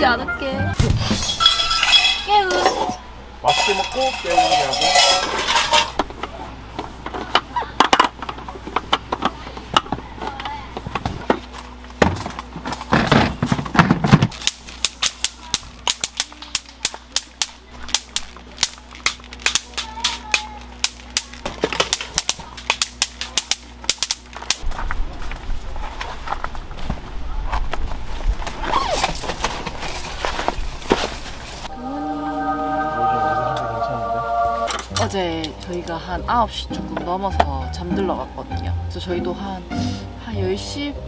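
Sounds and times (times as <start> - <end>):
objects clicking and clacking: 12.3 - 24.6.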